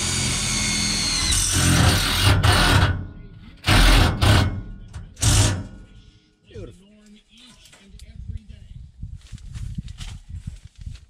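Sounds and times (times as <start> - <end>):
power drill driving fasteners: 0.0 - 3.0, 5.2 - 5.8.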